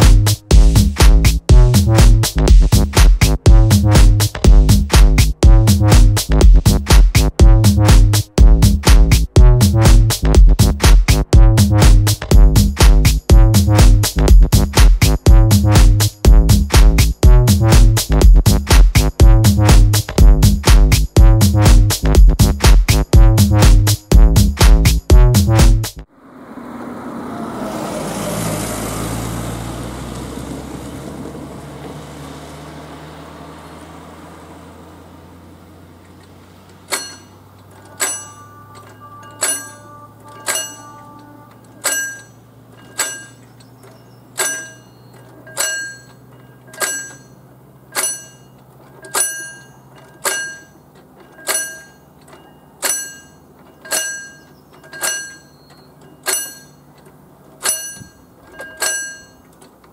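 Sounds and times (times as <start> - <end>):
car passing: 26.0 - 53.3
warning bell ringing: 36.9 - 59.6.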